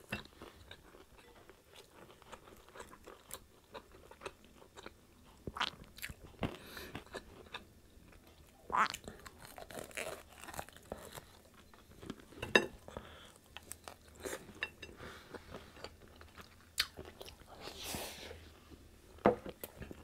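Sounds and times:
crunchy chewing: 0:00.2 - 0:12.3.

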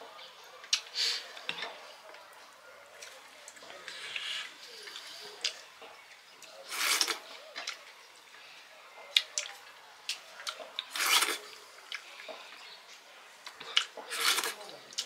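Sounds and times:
fingers scraping food on metal plates: 0:03.8 - 0:07.8, 0:10.5 - 0:12.8, 0:13.5 - 0:15.0.

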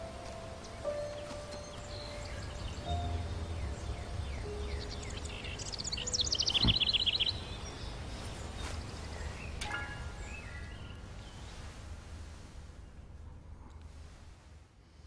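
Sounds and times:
songbird chirping and trilling: 0:00.0 - 0:11.8
low background rumble: 0:00.0 - 0:15.0.

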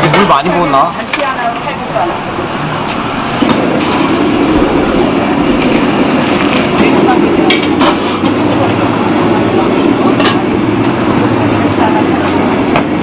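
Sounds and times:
kitchen rumbling roar: 0:00.0 - 0:13.0
faint chatter: 0:06.4 - 0:13.0.

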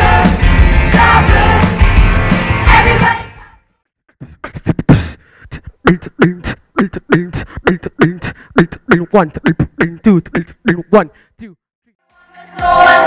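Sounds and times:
loud band music: 0:00.0 - 0:03.4
beatboxing into a microphone: 0:04.1 - 0:11.6.

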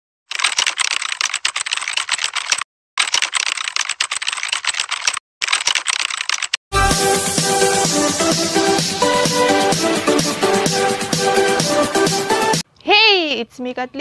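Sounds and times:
keyboard typing clicks: 0:00.3 - 0:06.6.

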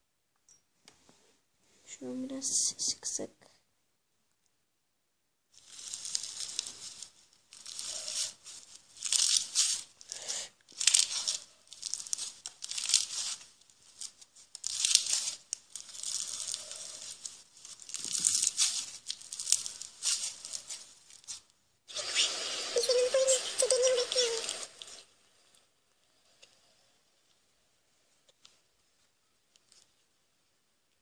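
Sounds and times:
crunchy slime squished by hand: 0:05.6 - 0:22.3.

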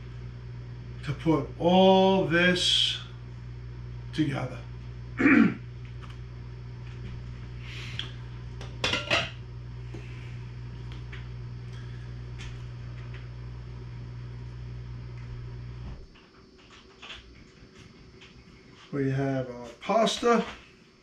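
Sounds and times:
low hum: 0:00.0 - 0:19.5.

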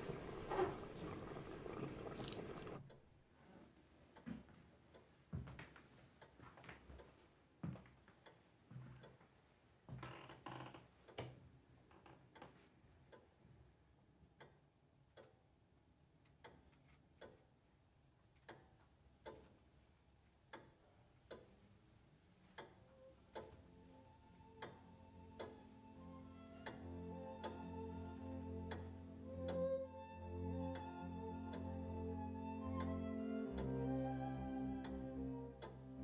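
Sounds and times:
clock ticking: 0:18.4 - 0:19.6, 0:20.5 - 0:21.6, 0:22.5 - 0:29.8, 0:30.5 - 0:33.9, 0:34.8 - 0:36.0
faint music with held notes: 0:22.6 - 0:36.0.

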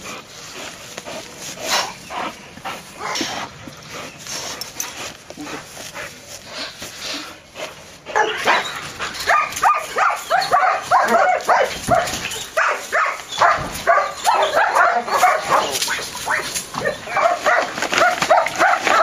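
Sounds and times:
dog scuffling: 0:00.0 - 0:19.0
dog whining and yipping: 0:08.2 - 0:19.0.

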